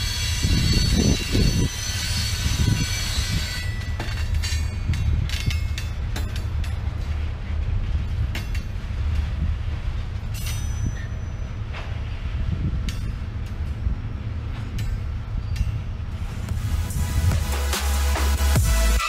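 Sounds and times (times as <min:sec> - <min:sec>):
steel wheels squealing on rail: 0:00.0 - 0:06.8, 0:10.3 - 0:12.0
clicks and clanks of train cars: 0:00.0 - 0:16.6
train rolling rumble: 0:00.0 - 0:19.0.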